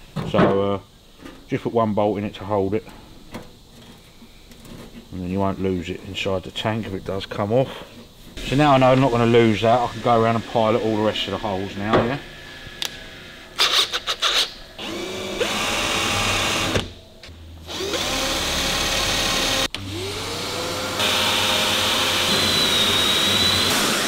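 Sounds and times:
drill motor spinning up: 0:12.3 - 0:16.9, 0:17.6 - 0:24.0.

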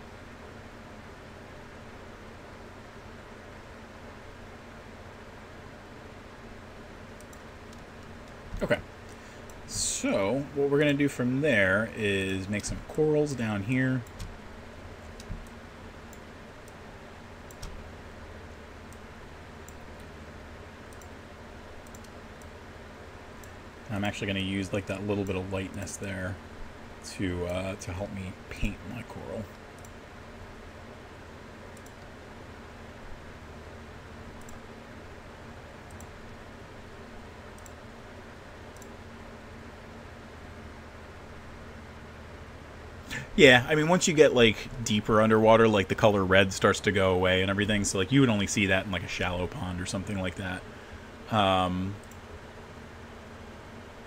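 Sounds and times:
faint low hum: 0:00.0 - 0:54.0
computer mouse clicks: 0:07.2 - 0:08.4, 0:17.4 - 0:17.8, 0:20.9 - 0:21.2, 0:21.8 - 0:22.6, 0:29.5 - 0:30.0, 0:31.7 - 0:32.1, 0:34.4 - 0:34.6, 0:35.8 - 0:36.2, 0:37.5 - 0:37.8, 0:38.7 - 0:39.0, 0:52.0 - 0:52.3.

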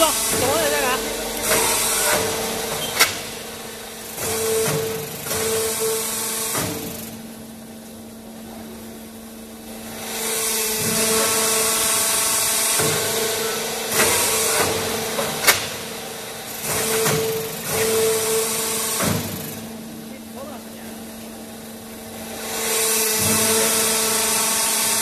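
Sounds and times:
machine humming and rushing: 0:00.0 - 0:04.3.

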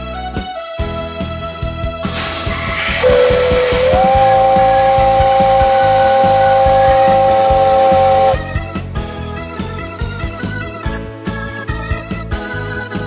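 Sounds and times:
steam hissing: 0:02.0 - 0:08.6
steam whistle blast: 0:02.0 - 0:08.8.

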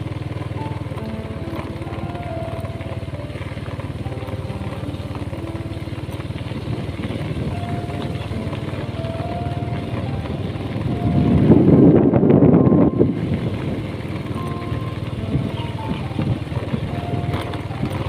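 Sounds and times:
motorcycle engine running: 0:00.0 - 0:18.0
rushing rumble: 0:00.0 - 0:18.0.

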